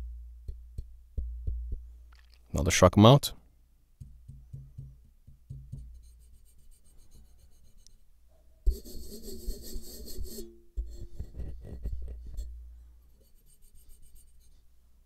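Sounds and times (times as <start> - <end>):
fingers tapping microphone mount: 4.0 - 6.0
rubbing on microphone mount: 5.5 - 8.0, 8.7 - 14.7.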